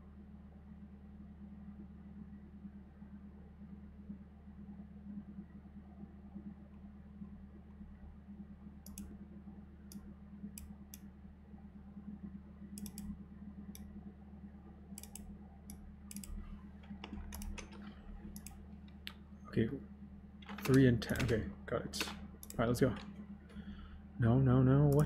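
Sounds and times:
steady low hum: 0.0 - 25.0
computer mouse clicks: 8.8 - 9.2, 12.7 - 13.9, 14.9 - 19.2, 20.4 - 21.4, 22.0 - 23.6
keyboard clicks: 12.8 - 13.1, 15.0 - 19.2, 20.4 - 23.6.

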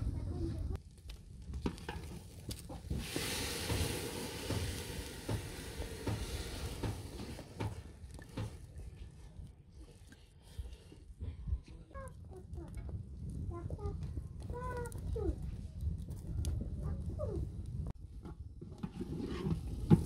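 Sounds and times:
food sizzling in hot pan: 2.9 - 7.4.

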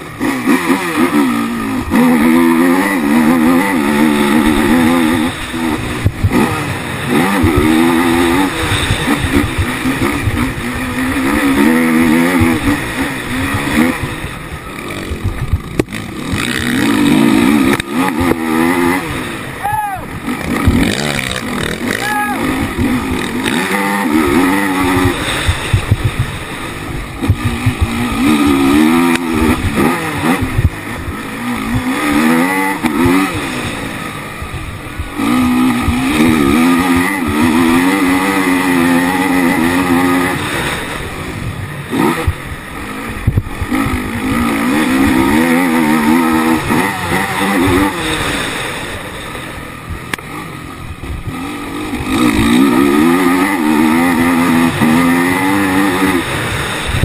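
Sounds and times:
quad engine revving: 0.0 - 57.0.

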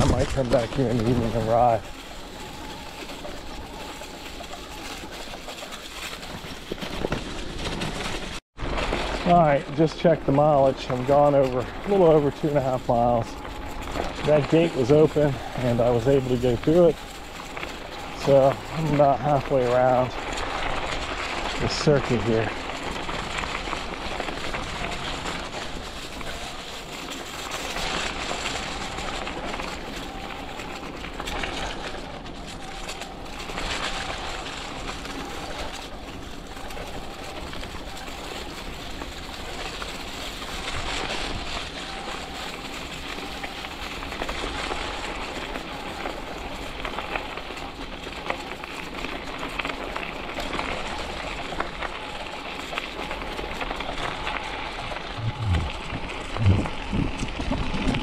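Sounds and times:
tyres rolling: 0.0 - 58.0
wind on microphone: 54.6 - 58.0.

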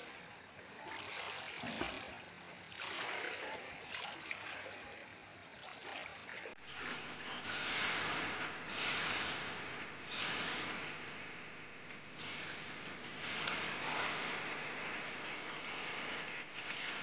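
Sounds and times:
swimmer splashing pool water: 0.0 - 11.1.

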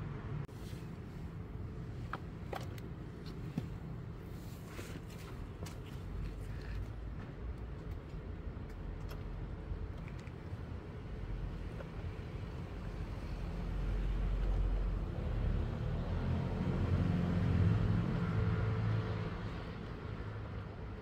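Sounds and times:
passing vehicle engine rumble: 11.0 - 21.0.

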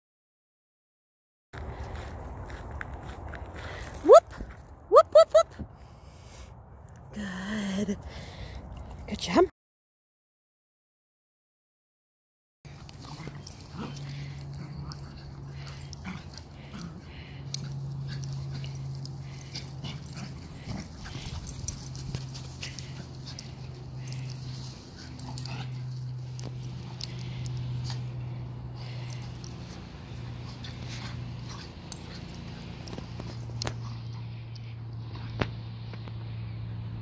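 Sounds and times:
dogs play-growling: 12.7 - 35.6.

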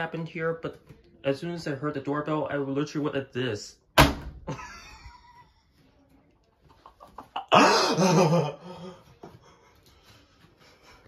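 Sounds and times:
washing machine door slamming: 4.0 - 4.5.

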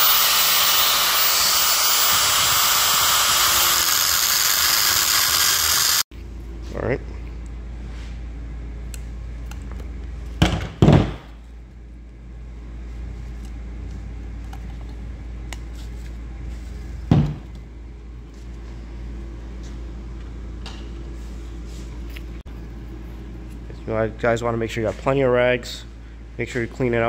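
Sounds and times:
steady low hum: 6.0 - 27.0.

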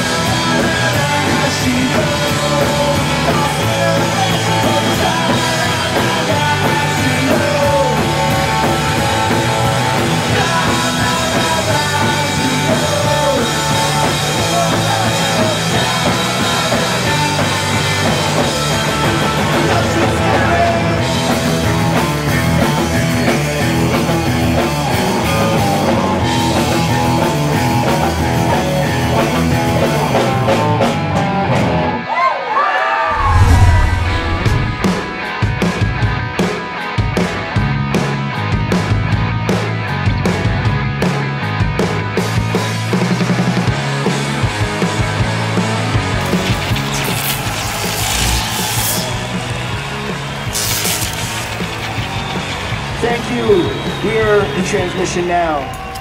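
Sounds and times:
drum kit: 0.0 - 31.8, 33.1 - 56.0
electric bass guitar: 0.0 - 32.0, 33.1 - 56.0
electric guitars: 0.0 - 32.2, 33.0 - 56.0.

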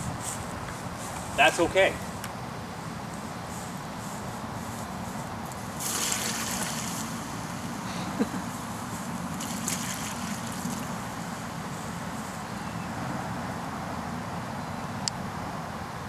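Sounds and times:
water splashing onto board: 5.8 - 7.4, 9.3 - 11.0.

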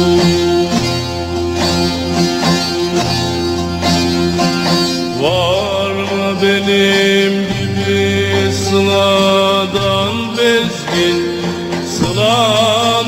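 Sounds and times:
person singing: 0.0 - 1.0, 5.1 - 13.0
plucked string instrument: 0.0 - 13.0.

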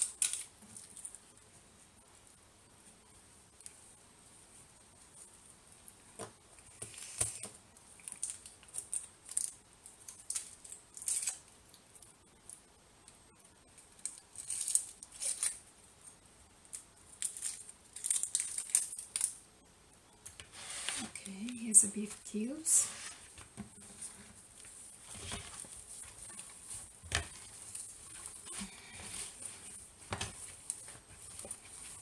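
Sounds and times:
hand squishing meat mixture: 24.4 - 32.0.

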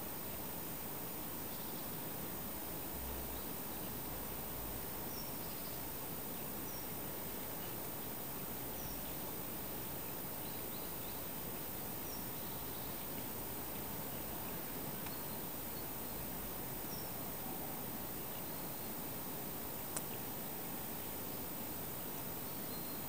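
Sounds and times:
steady hiss: 0.0 - 23.0
faint high chirps: 10.3 - 19.2, 22.2 - 23.0.

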